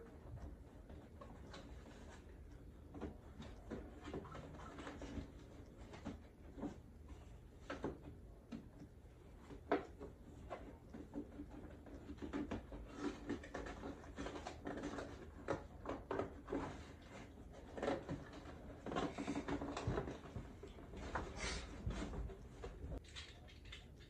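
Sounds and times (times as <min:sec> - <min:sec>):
cardboard and plastic rustling: 0:00.0 - 0:08.7, 0:09.4 - 0:23.3.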